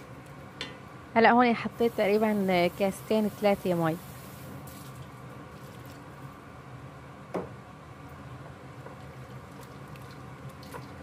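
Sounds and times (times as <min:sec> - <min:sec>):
sauce bubbling: 0:08.8 - 0:11.0
water pouring into a pot: 0:09.1 - 0:11.0.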